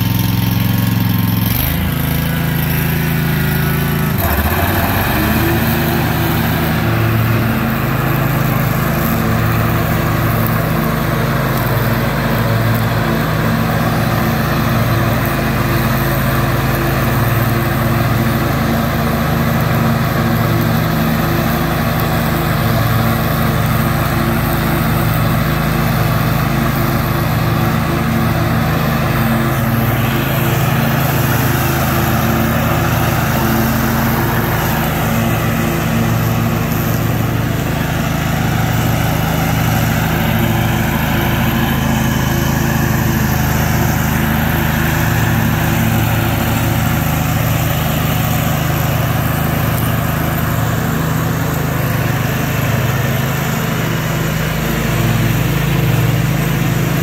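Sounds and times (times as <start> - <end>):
lawn mower running: 0.0 - 57.0.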